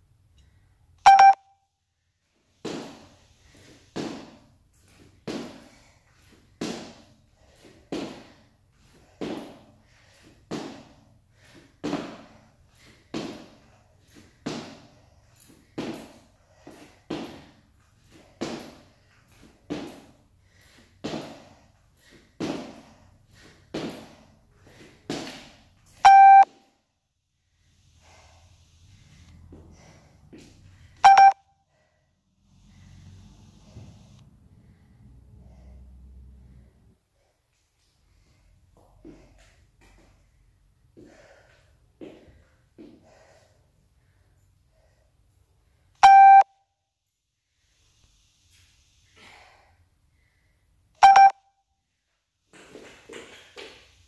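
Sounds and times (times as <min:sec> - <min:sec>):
electronic timer beeps: 0:01.0 - 0:01.6, 0:26.0 - 0:26.5, 0:31.0 - 0:31.5, 0:46.0 - 0:46.6, 0:51.0 - 0:51.6.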